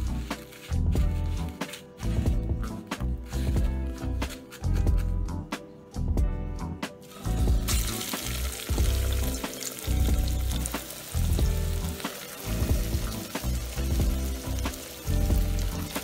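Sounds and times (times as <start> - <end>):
background music with a beat: 0.0 - 16.0
fish deep-frying in oil: 7.1 - 16.0.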